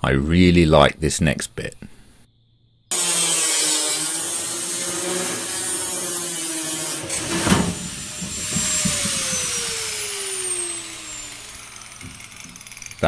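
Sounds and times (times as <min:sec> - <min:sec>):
angle grinder cutting steel: 0:02.9 - 0:13.0
steel panel crashing down: 0:04.0 - 0:13.0.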